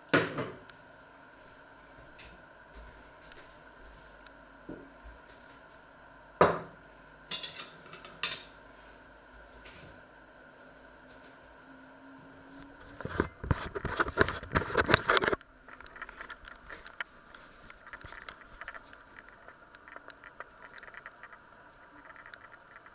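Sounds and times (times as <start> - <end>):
faint clicks and rustling: 12.5 - 22.9
rubbing and knocking on microphone: 12.8 - 15.4.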